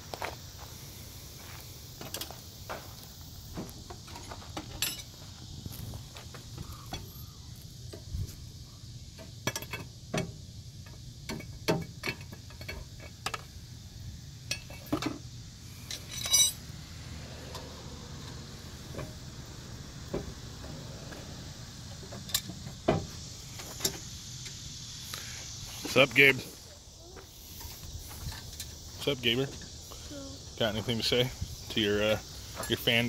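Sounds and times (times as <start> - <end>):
insect drone: 0.0 - 33.0
metallic tool clinks: 15.9 - 16.6.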